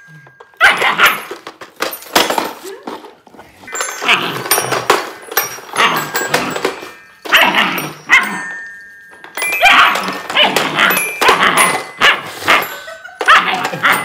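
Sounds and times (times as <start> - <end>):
toy xylophone ringing: 0.0 - 2.3, 3.6 - 14.0
puppy barking: 0.6 - 1.3.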